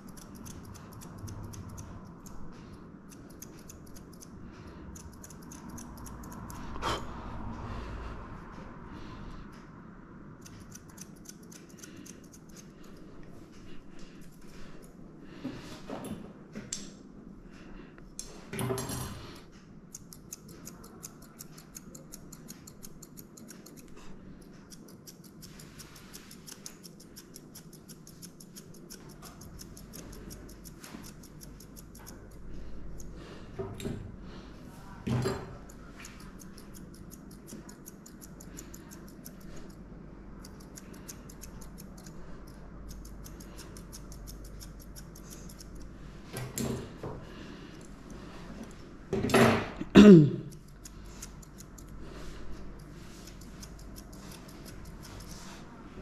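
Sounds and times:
scissors snipping fur: 0:00.0 - 0:07.1, 0:10.4 - 0:15.0, 0:19.1 - 0:33.9, 0:35.5 - 0:39.8, 0:40.4 - 0:48.8, 0:50.4 - 0:55.6.

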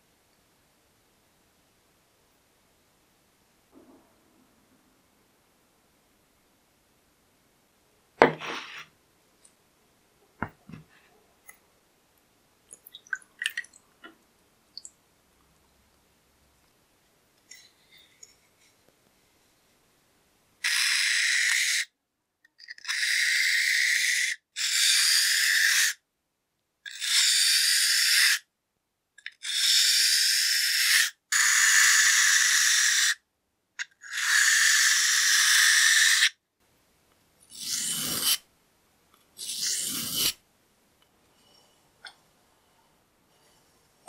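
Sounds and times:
razor blade scraping on whetstone: 0:37.5 - 0:38.4, 0:39.4 - 0:40.4.

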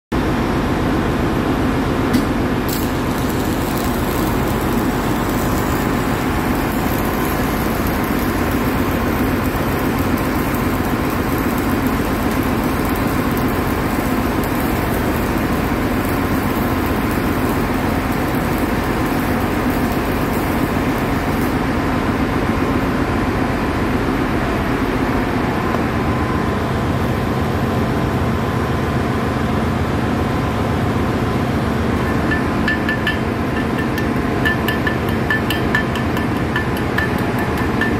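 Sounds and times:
workshop machinery drone: 0:00.1 - 0:37.9
welding arc hissing: 0:02.6 - 0:21.7.

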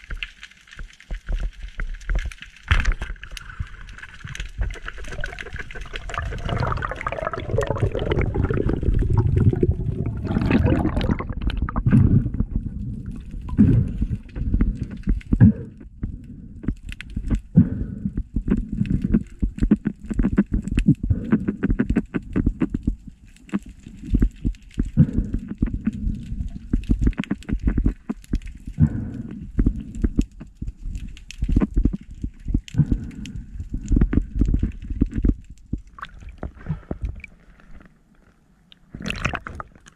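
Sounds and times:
water rushing and gurgling: 0:02.9 - 0:14.1.

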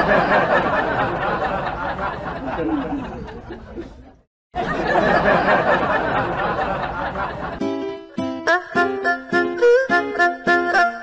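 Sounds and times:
crowd laughing and chattering: 0:00.0 - 0:08.0.

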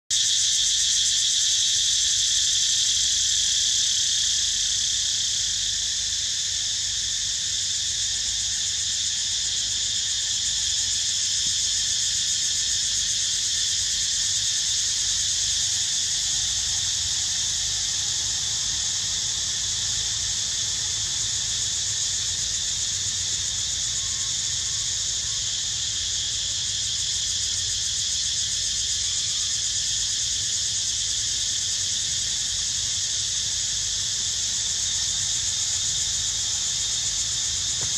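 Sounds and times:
insects buzzing: 0:00.1 - 0:37.9.

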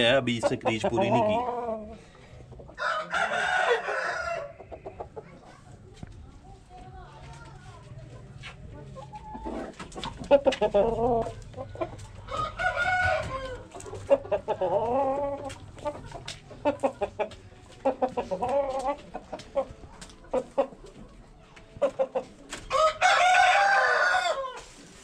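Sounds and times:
rooster clucking: 0:00.0 - 0:05.6, 0:08.3 - 0:21.1, 0:21.8 - 0:24.8
rooster crowing: 0:02.8 - 0:04.6, 0:12.3 - 0:13.7, 0:22.7 - 0:24.7.

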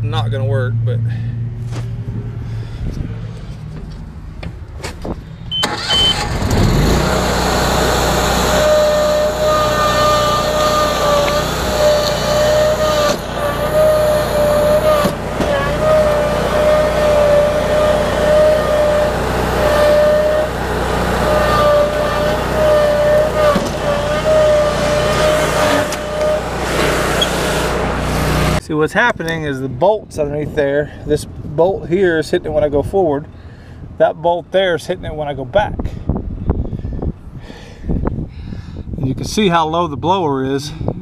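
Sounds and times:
riding mower engine whining: 0:05.4 - 0:29.5.

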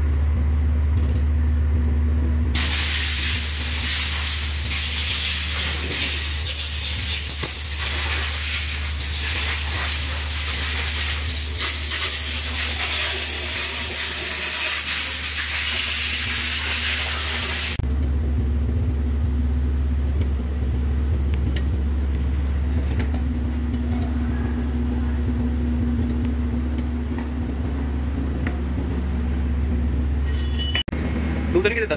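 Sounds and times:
low machine hum: 0:00.0 - 0:31.9
hiss: 0:02.6 - 0:17.8.

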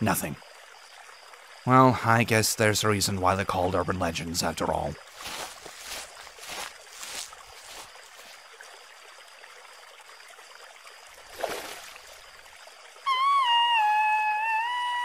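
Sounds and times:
water lapping: 0:05.0 - 0:08.8, 0:11.2 - 0:12.5.

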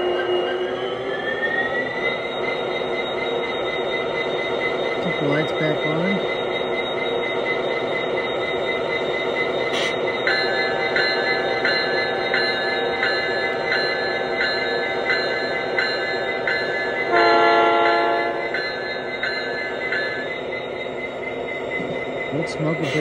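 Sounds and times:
locomotive bell ringing: 0:01.5 - 0:23.0
locomotive horn blast: 0:17.1 - 0:18.5.

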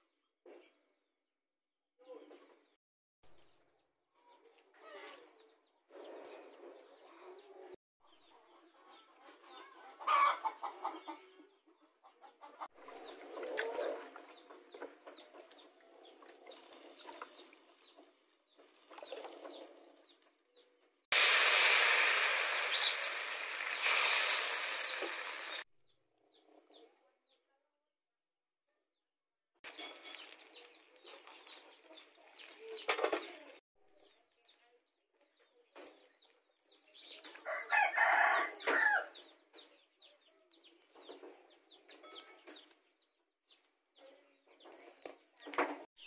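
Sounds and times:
chickens clucking: 0:04.7 - 0:20.2
loud steady hiss: 0:21.1 - 0:25.6.

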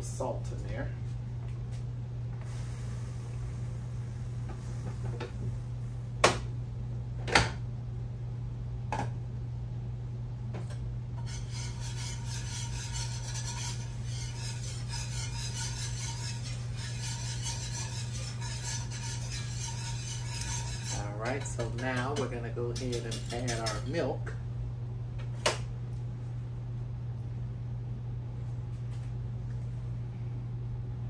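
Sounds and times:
steady low hum: 0:00.0 - 0:31.0
metal utensil clinking on pot: 0:17.4 - 0:24.0.

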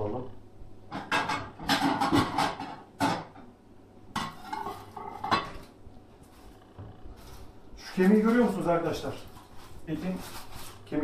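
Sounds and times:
plates clinking: 0:04.2 - 0:05.6.

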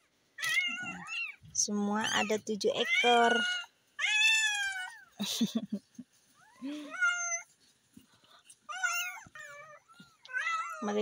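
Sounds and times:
kittens mewing: 0:00.4 - 0:01.4, 0:02.0 - 0:05.2, 0:06.4 - 0:07.5, 0:08.6 - 0:11.0.

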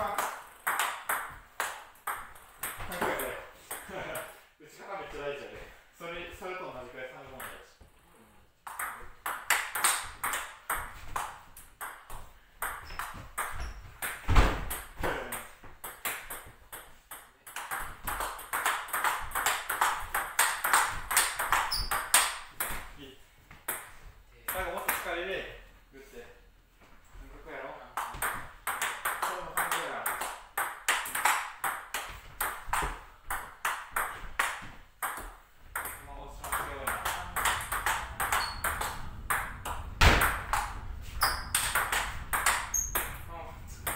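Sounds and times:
ball bouncing on table: 0:08.6 - 0:22.9, 0:28.0 - 0:43.2
ball clicking off paddles: 0:08.7 - 0:22.8, 0:28.0 - 0:43.9
table tennis ball clicking: 0:35.0 - 0:43.2.

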